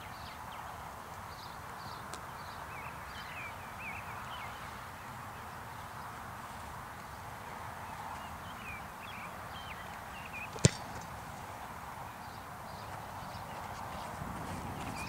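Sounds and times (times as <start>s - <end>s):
foot kicking football thump: 10.5s - 11.2s.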